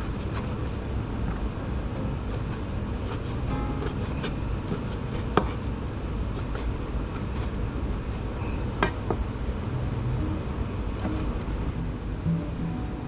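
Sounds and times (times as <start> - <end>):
low background hum: 0.0 - 13.0
knife slicing raw chicken: 2.3 - 9.1.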